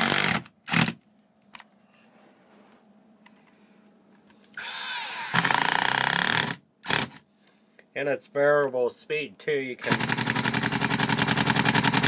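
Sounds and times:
impact driver whining: 0.0 - 1.0, 4.5 - 7.2, 9.8 - 12.0.

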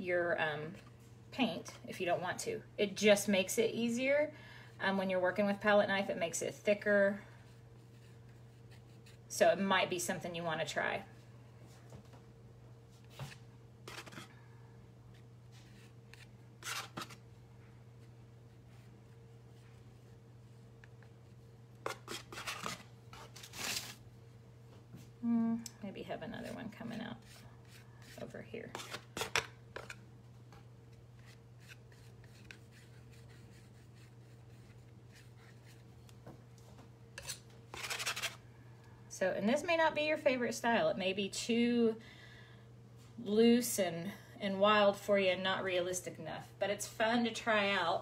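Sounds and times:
faint steady hum: 0.0 - 48.0
palette knife scraping paper: 13.2 - 14.3, 15.6 - 17.2, 21.8 - 24.0, 31.2 - 35.8, 37.2 - 38.4.

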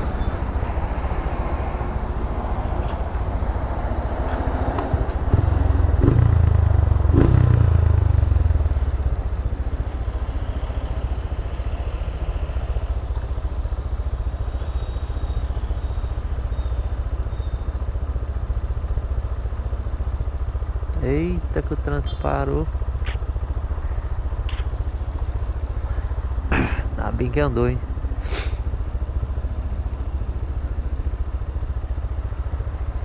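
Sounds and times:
motorcycle engine rumble: 0.0 - 33.0.

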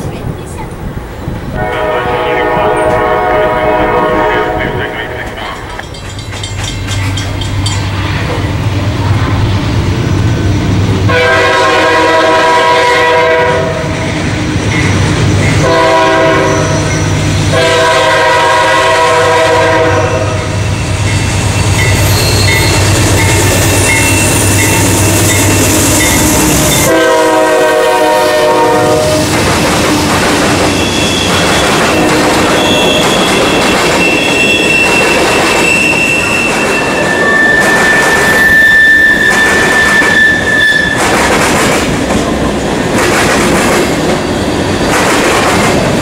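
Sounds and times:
diesel locomotives droning: 0.0 - 46.0
train air horn blasts: 1.6 - 5.3, 11.1 - 14.0, 15.6 - 20.6, 23.6 - 29.3
bell ringing: 5.4 - 8.0, 20.8 - 26.9.

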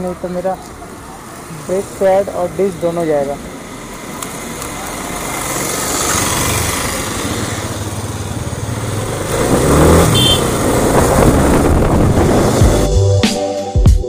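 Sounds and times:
motorcycle engine running: 4.8 - 12.9
wind noise on microphone: 9.4 - 12.9.

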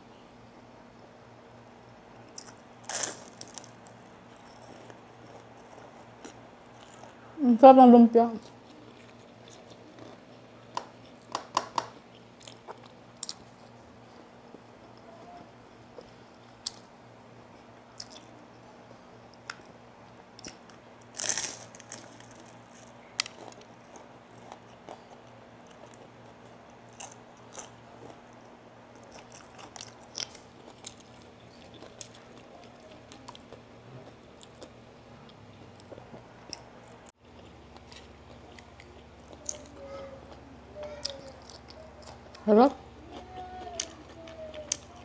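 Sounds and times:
faint steady hum: 0.0 - 45.0
crunchy chewing: 2.3 - 7.2, 8.4 - 11.3, 12.0 - 16.9, 17.6 - 18.4, 19.3 - 45.0.

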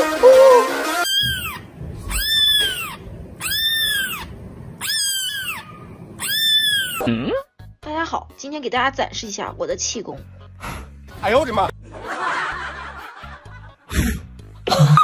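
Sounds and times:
kitten mewing: 0.4 - 7.4.

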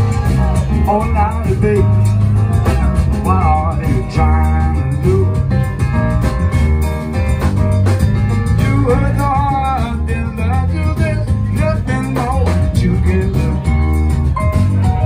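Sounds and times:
funk band playing: 0.0 - 15.0
sliding melodic line: 0.0 - 15.0.

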